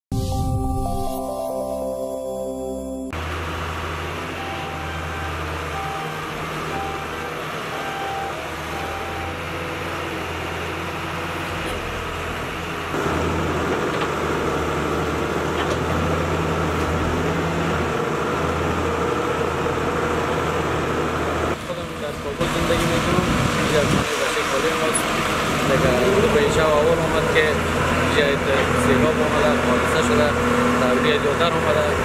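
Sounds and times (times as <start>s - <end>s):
excavator diesel engine running: 3.1s - 32.0s
short high beeps: 4.4s - 9.5s.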